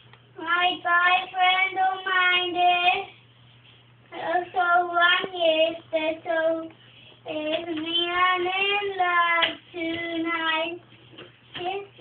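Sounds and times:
young child singing: 0.4s - 3.1s, 4.1s - 10.8s, 11.5s - 12.0s.

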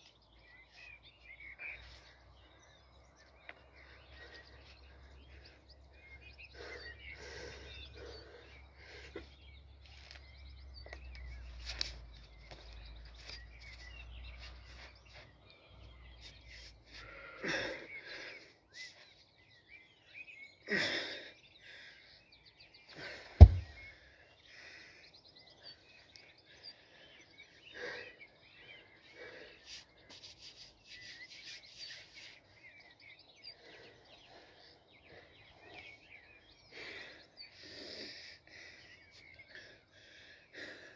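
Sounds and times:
faint bird chirps: 0.0s - 40.9s
heavy stone thudding on grass: 23.4s - 23.8s.

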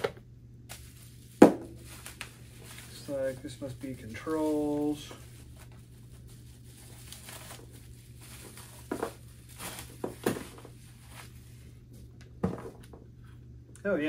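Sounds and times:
steady low hum: 0.0s - 14.0s
plastic bag crinkling: 0.7s - 11.6s.

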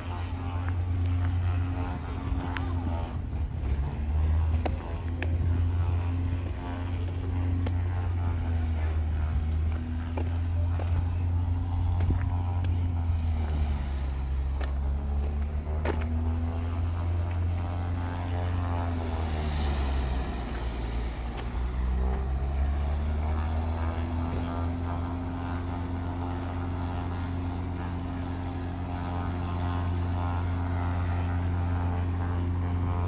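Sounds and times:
engine droning: 0.0s - 33.0s.

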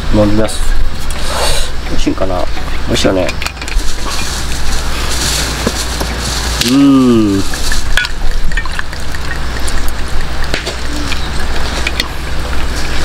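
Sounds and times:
person humming: 6.6s - 7.5s
liquid pouring into a glass: 7.0s - 11.8s.

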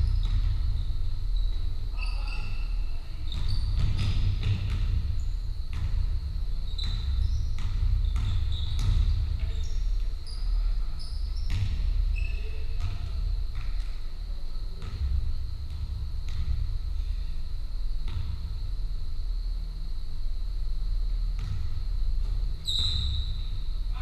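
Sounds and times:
trainers squeaking on boards: 1.4s - 3.8s, 12.1s - 12.7s
basketball bouncing on wooden floor: 3.3s - 9.7s, 11.4s - 11.9s, 12.8s - 13.9s, 14.8s - 16.6s, 18.1s - 18.4s.

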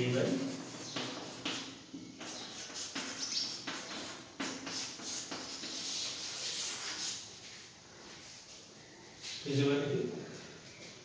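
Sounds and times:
chalk scratching on chalkboard: 0.0s - 8.5s.

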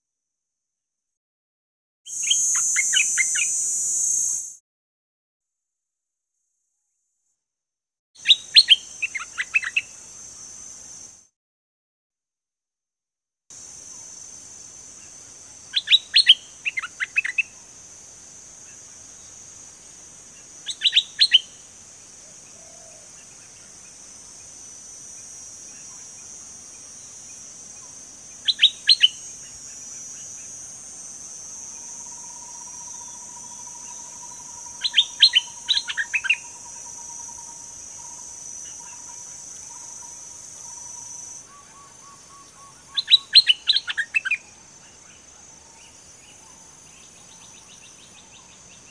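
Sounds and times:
high-pitched background buzz: 2.1s - 4.6s, 13.6s - 48.9s.

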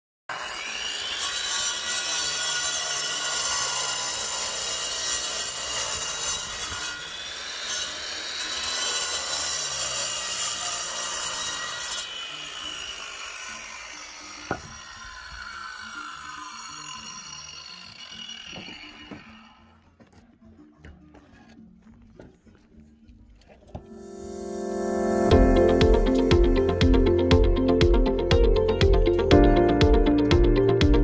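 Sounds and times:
angle grinder cutting concrete: 0.3s - 19.7s.

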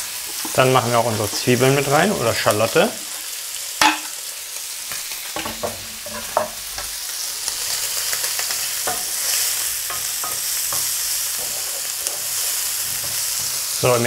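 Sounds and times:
meat and onion sizzling in oil: 0.0s - 14.0s
wooden spatula scraping and tapping: 0.2s - 1.6s, 5.4s - 7.0s, 9.9s - 13.8s.

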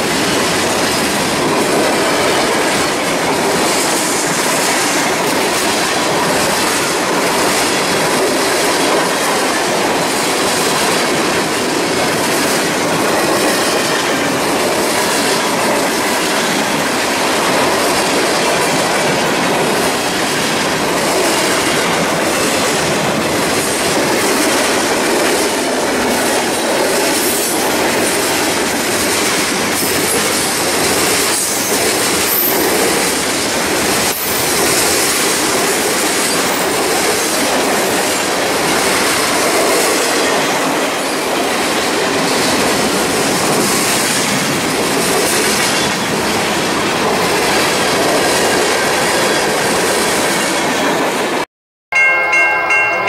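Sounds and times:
steel wheels rattling on rail: 0.0s - 51.4s
rail clacks: 0.0s - 53.0s.

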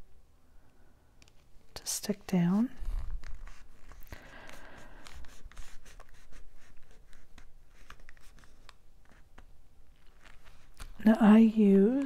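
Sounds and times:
paper rustling and crinkling: 2.7s - 12.0s.

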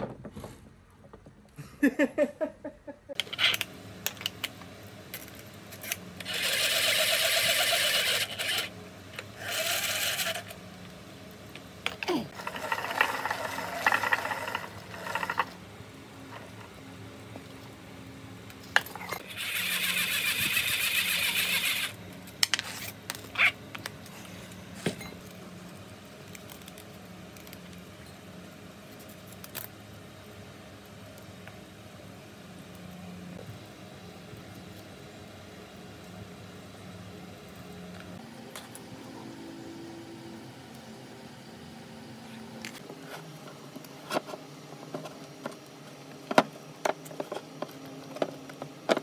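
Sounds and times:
hand-cranked winding jig whirring: 5.8s - 8.7s, 9.4s - 10.6s, 12.4s - 15.6s, 19.2s - 22.0s.

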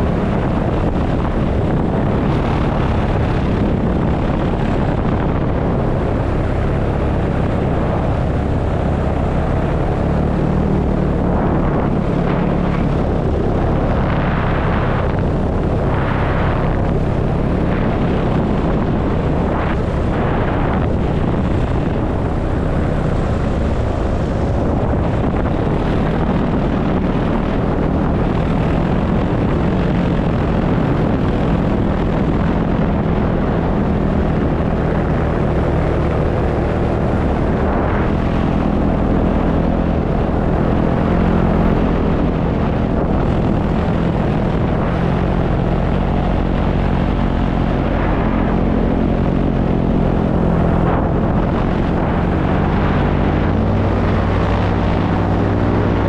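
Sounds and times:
paramotor engine and propeller: 0.0s - 56.0s
wind rushing over microphone: 0.0s - 56.0s.

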